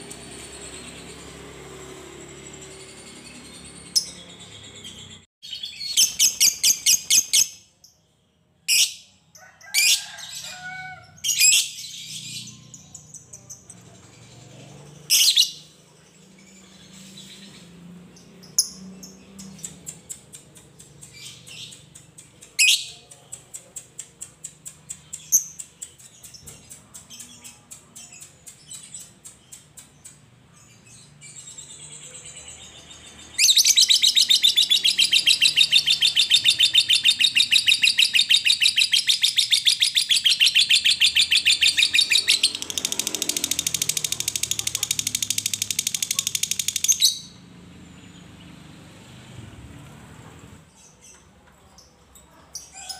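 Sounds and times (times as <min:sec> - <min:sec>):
lovebird chattering trill: 0:33.5 - 0:47.4
lovebird ticking clicks: 0:42.6 - 0:47.0.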